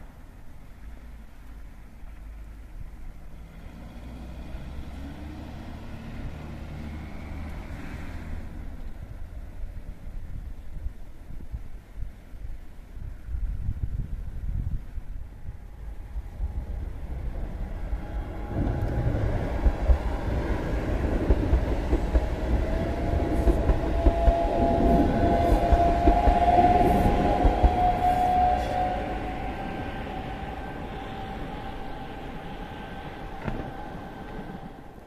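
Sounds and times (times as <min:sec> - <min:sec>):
train rumbling over bridge: 0:01.6 - 0:11.6, 0:12.8 - 0:35.0
high-pitched train whine: 0:15.2 - 0:35.0
train wheels clacking on track: 0:18.4 - 0:29.6.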